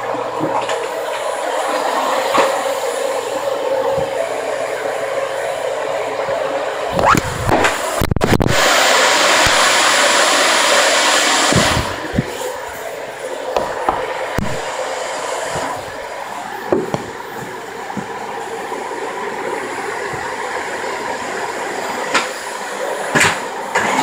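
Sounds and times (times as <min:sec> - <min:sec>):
vacuum cleaner running on carpet: 0:00.0 - 0:24.0
vacuum cleaner knocks: 0:16.7 - 0:18.2.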